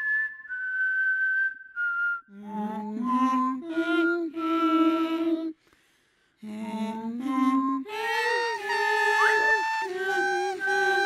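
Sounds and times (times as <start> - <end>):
person humming a wordless tune: 2.3 - 5.6, 6.4 - 11.0.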